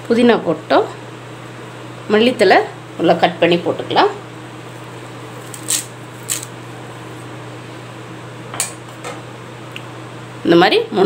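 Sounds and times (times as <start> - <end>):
steady low hum: 0.0 - 11.0
leaves clinking in a steel jar: 5.4 - 6.5.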